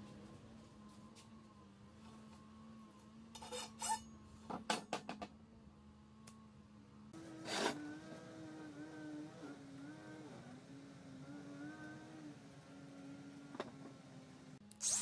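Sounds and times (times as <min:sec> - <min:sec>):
coil spring coils rasping: 0:03.4 - 0:04.1.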